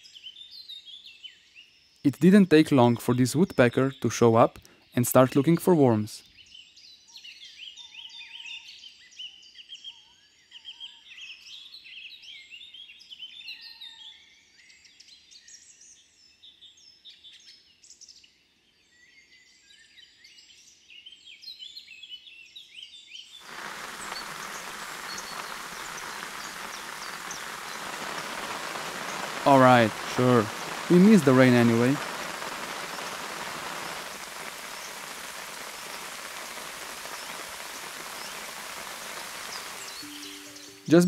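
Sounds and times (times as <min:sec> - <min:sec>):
rain falling: 0:23.4 - 0:41.0
songbirds chirping and trilling: 0:23.5 - 0:41.0.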